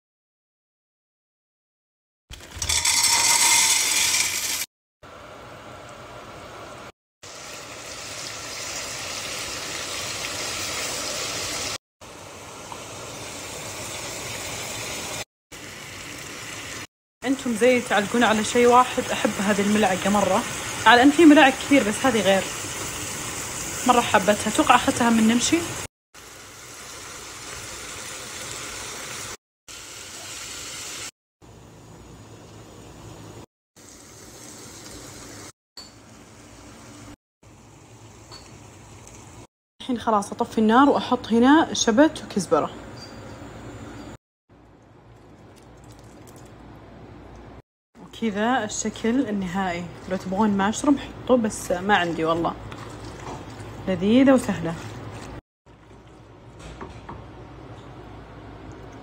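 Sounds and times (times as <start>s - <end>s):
dry pasta pouring into a pot: 2.4s - 4.7s
chicken sizzling in a pan: 7.2s - 16.9s, 26.2s - 31.1s.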